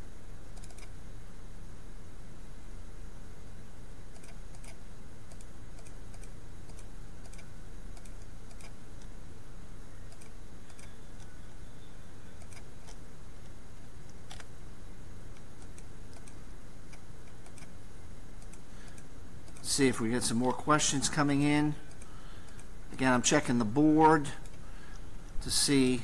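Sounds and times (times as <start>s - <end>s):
steady low hum: 0.0s - 26.0s
keyboard typing: 0.5s - 0.9s, 4.1s - 8.8s, 12.4s - 13.0s, 15.6s - 17.7s.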